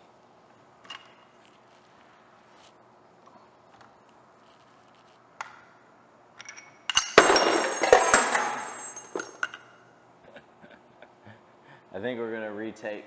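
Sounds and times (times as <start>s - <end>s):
small metal clinks: 6.4s - 9.8s.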